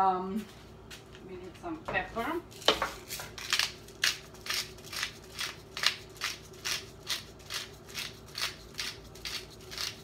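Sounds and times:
pepper mill grinding: 2.5 - 10.0.

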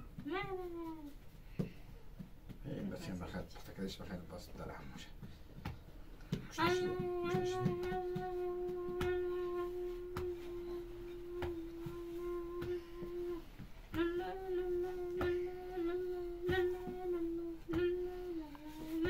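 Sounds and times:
person humming: 6.5 - 19.0.

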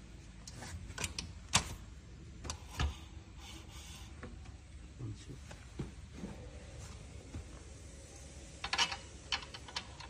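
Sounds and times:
metal parts clicking and knocking: 8.6 - 10.0.

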